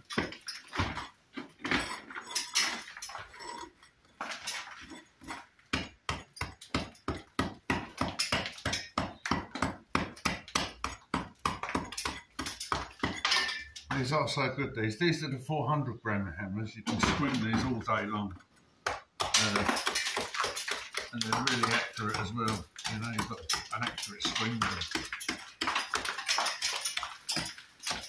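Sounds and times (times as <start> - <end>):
hammer striking brick: 5.2 - 13.2, 18.8 - 28.0.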